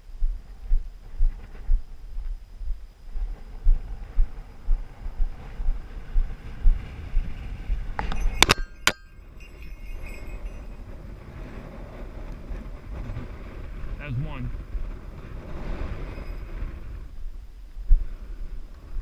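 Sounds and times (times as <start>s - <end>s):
sharp metallic clinks: 7.6s - 11.2s.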